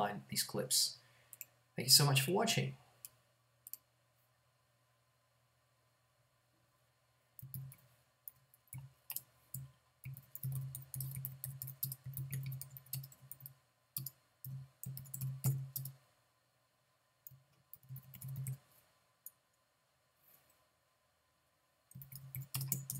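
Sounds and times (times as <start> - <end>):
typing on computer keyboard: 7.4 - 16.0, 17.3 - 18.6, 21.9 - 22.9.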